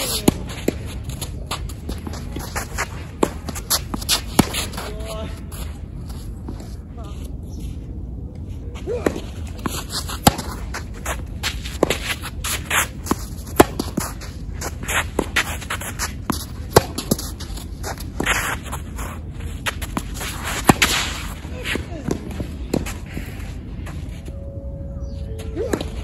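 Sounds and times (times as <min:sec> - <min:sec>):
tennis ball bouncing: 0:00.0 - 0:04.8, 0:09.0 - 0:18.8, 0:19.6 - 0:23.0
racket striking tennis ball: 0:00.0 - 0:05.0, 0:09.0 - 0:18.8, 0:19.6 - 0:23.4.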